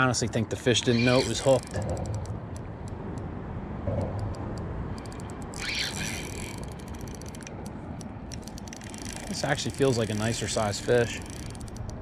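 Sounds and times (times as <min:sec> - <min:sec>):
fishing reel drag clicking: 0:00.9 - 0:01.8, 0:05.0 - 0:12.0.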